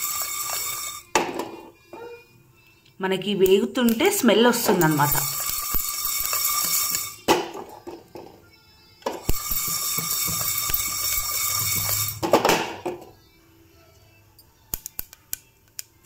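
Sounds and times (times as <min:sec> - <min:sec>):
seeds rattling in a pot: 0:00.0 - 0:01.1, 0:03.9 - 0:07.2, 0:09.2 - 0:12.3
sharp clicks: 0:03.4 - 0:06.4.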